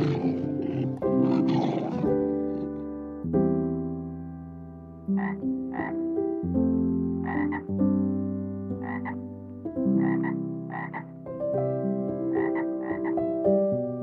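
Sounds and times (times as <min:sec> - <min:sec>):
animal calls: 0:00.0 - 0:02.8
slow background music: 0:00.0 - 0:14.0.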